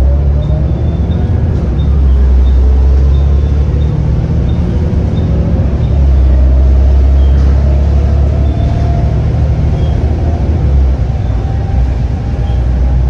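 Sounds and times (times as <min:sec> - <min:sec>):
bus diesel engine droning: 0:00.0 - 0:13.0.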